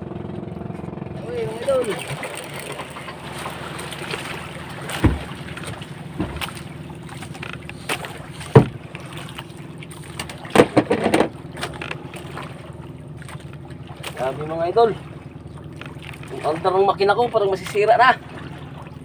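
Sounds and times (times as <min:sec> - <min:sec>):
boat engine drone: 0:00.0 - 0:19.0
water rushing along hull: 0:00.0 - 0:19.0
sharp thumps: 0:04.9 - 0:06.7, 0:07.3 - 0:09.1, 0:10.5 - 0:11.8.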